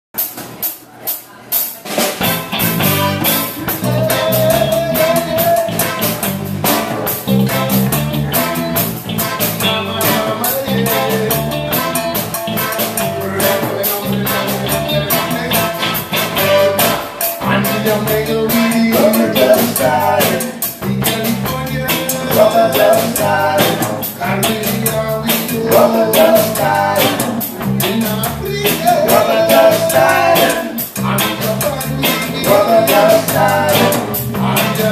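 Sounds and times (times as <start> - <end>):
live reggae band playing: 0.2 - 34.9.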